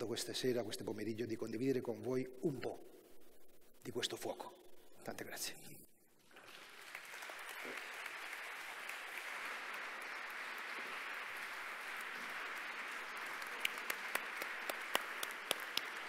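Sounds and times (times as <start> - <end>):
audience applauding: 6.3 - 16.0
loud single claps: 6.9 - 16.0.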